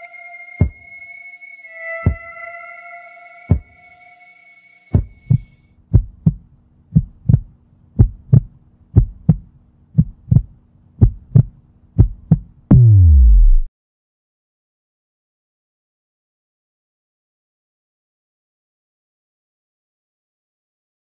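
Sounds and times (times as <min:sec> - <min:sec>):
held high tone: 0:00.0 - 0:05.6
low steady hum: 0:03.0 - 0:13.7
heartbeat thumps: 0:03.5 - 0:03.8, 0:05.0 - 0:13.7.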